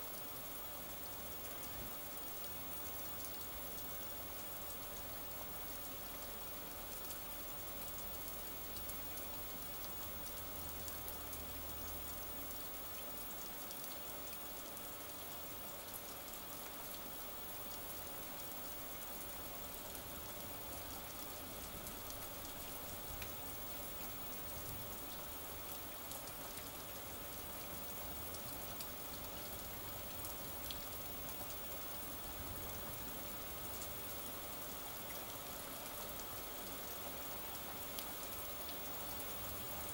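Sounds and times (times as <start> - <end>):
steady rain hiss: 0.0 - 39.9
raindrops ticking: 1.4 - 39.9.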